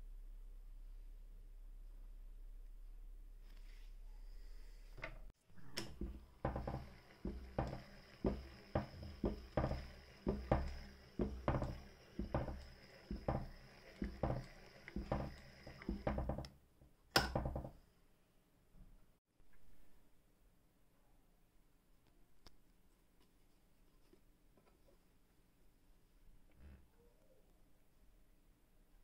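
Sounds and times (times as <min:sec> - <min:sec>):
sewing machine knocking: 0:05.6 - 0:16.6, 0:17.2 - 0:17.8.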